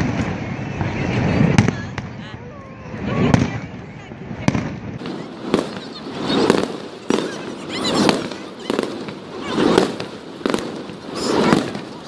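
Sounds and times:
rumbling crackling fireworks: 0.0 - 12.0
firework shells bursting: 4.5 - 12.0.

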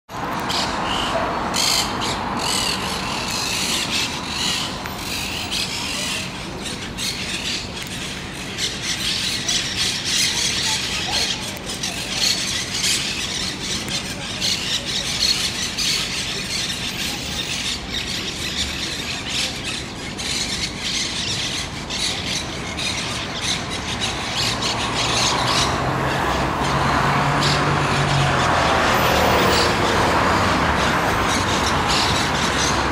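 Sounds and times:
birds calling: 0.2 - 32.9
passing vehicle engine: 23.7 - 32.9.

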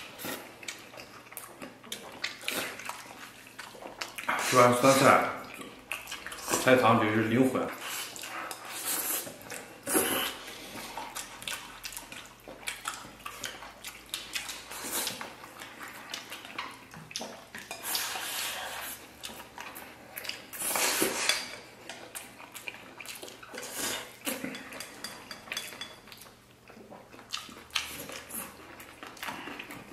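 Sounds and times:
people slurping and chewing: 0.0 - 6.9, 7.7 - 29.9.

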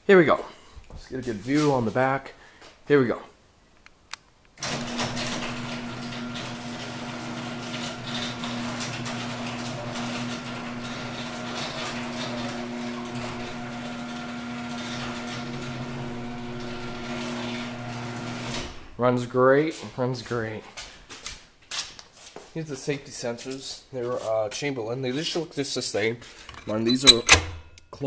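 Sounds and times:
garage door motor humming: 4.6 - 19.0
garage door opener click: 4.6 - 19.0, 27.0 - 27.8.

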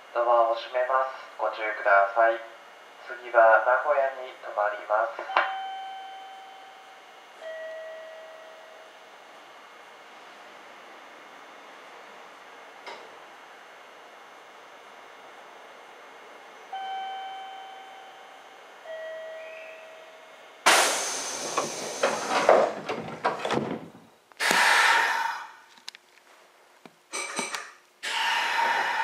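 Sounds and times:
two-tone chime: 5.3 - 8.9, 16.7 - 20.4
hissing rush: 20.6 - 22.8
rushing air noise: 20.6 - 23.2
train doors closing thud: 20.6 - 24.0.

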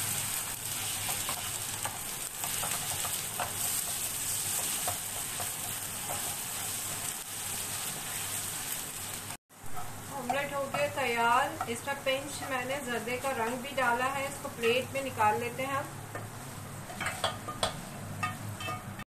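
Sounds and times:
eggs sizzling in oil: 0.0 - 18.7
spatula scraping and tapping pan: 0.9 - 7.2, 16.1 - 19.0.

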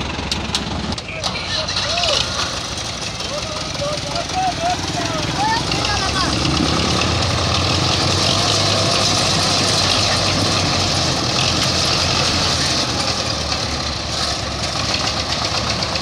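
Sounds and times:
tractor engines running under load: 0.0 - 16.0.

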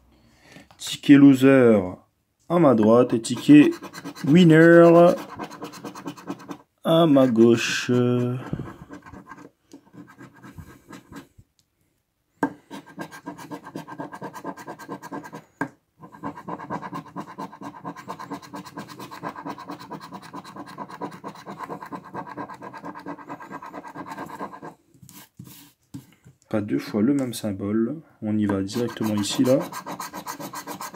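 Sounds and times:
coin scratching a ticket: 3.1 - 11.2, 12.8 - 15.4, 16.1 - 24.7, 28.6 - 30.9.

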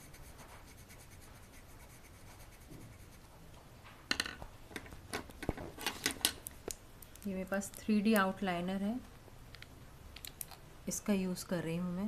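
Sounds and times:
pencil scratching on paper: 0.0 - 3.4
clicks and knocks on table: 4.1 - 6.4.

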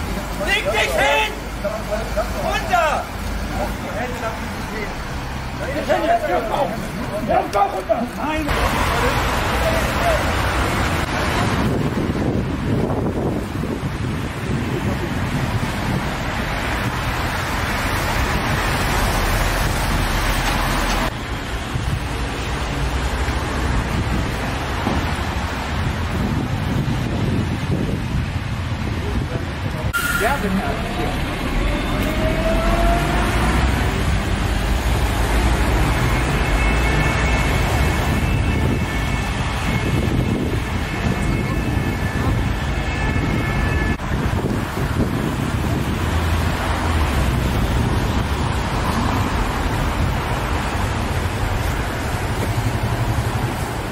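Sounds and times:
street traffic: 0.0 - 53.9
wind buffeting microphone: 10.9 - 20.3, 23.6 - 30.0, 37.9 - 53.9.

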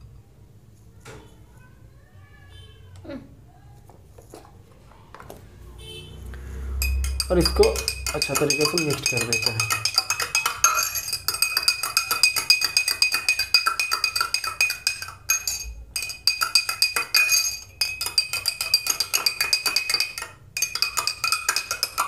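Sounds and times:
metal spoon clinking in glass: 6.8 - 22.0.

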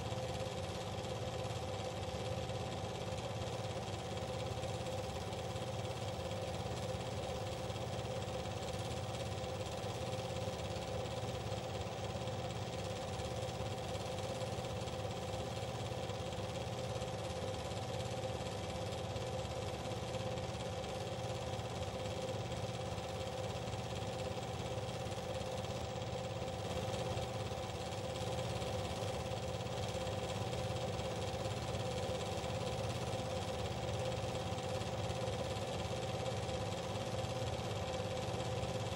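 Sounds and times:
motor running drone: 23.1 - 35.4.

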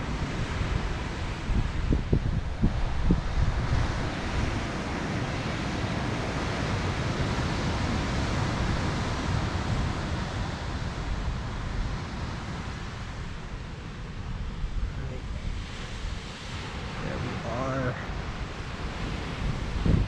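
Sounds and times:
surf breaking on shore: 0.0 - 20.0
wind buffeting microphone: 0.0 - 20.0.

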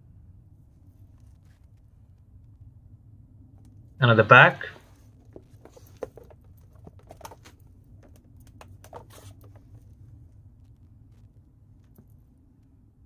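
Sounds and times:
low steady hum: 0.0 - 13.0
light clicks and rustles: 4.9 - 12.7.

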